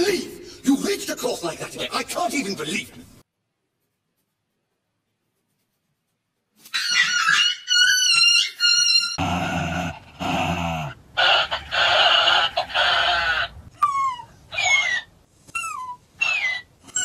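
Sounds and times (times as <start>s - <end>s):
dog growling: 9.2s - 11.0s
dog whining: 13.7s - 17.0s.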